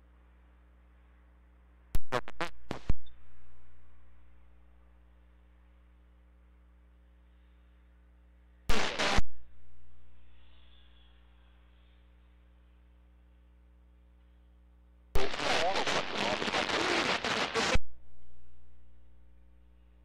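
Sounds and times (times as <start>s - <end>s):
faint mains hum: 0.0s - 20.0s
radio static bursts: 8.7s - 9.2s, 15.2s - 17.8s.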